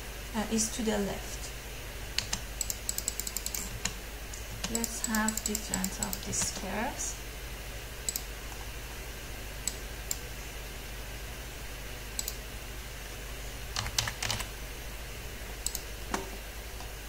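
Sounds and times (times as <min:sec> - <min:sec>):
low steady hum: 0:00.0 - 0:17.0
keyboard and mouse clicks: 0:02.2 - 0:06.6, 0:08.1 - 0:08.3, 0:12.2 - 0:12.4, 0:13.7 - 0:14.5, 0:15.6 - 0:16.3.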